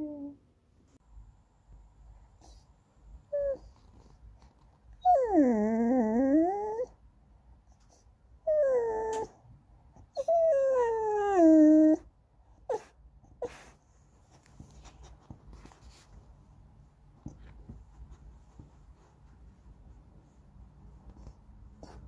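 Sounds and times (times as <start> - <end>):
puppy whining: 0.0 - 0.4, 3.2 - 7.0, 7.9 - 9.4, 10.0 - 13.8.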